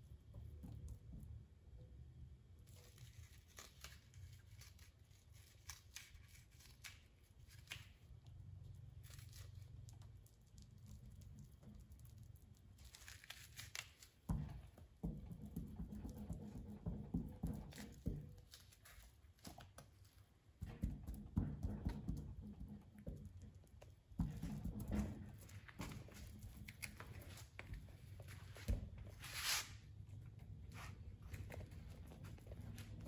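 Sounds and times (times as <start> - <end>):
rustling and knocks: 13.9 - 33.0
fiberglass mat tearing: 29.2 - 29.8.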